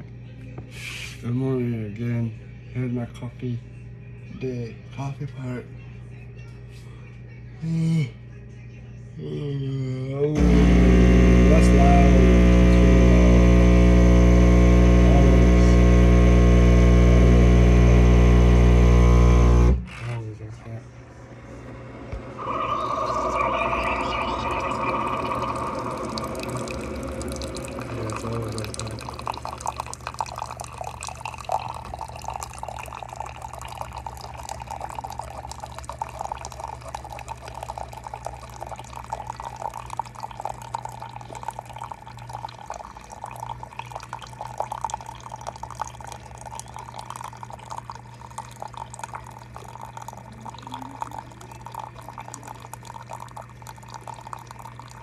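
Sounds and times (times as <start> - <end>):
coffee machine hum: 0.0 - 55.0
coffee pouring into mug: 10.4 - 19.8, 22.1 - 55.0.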